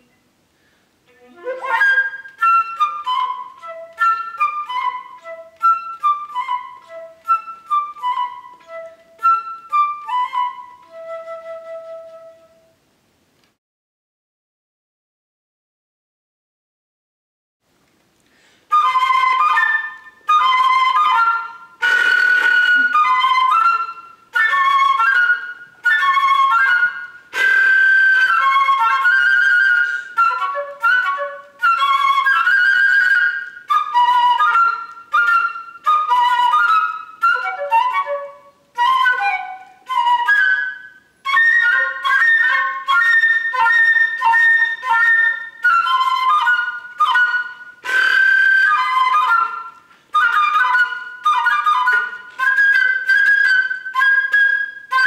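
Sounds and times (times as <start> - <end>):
solo flute imitating bird calls: 18.7 - 55.0.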